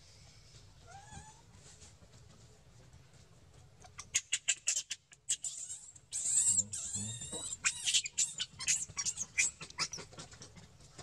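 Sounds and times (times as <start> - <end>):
monkey squeaking: 4.0 - 10.2.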